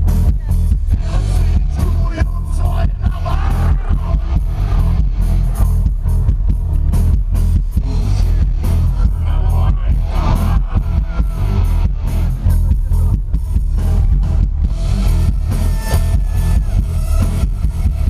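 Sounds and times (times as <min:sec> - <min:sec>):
heavy bass: 0:00.0 - 0:18.0
live rock band: 0:00.0 - 0:18.0
person singing: 0:00.2 - 0:05.0, 0:08.2 - 0:13.2.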